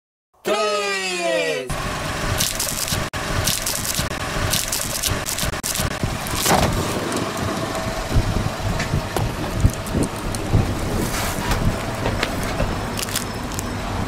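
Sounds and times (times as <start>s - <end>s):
car engine running: 1.7s - 14.0s
candy crunching under tyre: 2.4s - 7.6s, 9.2s - 13.8s.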